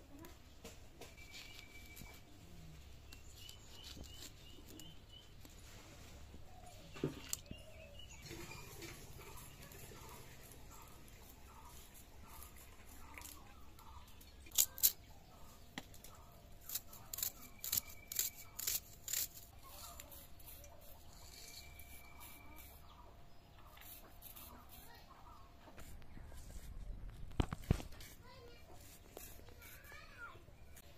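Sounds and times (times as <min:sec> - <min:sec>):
faint bird chirps: 0:01.0 - 0:13.1, 0:19.6 - 0:25.4.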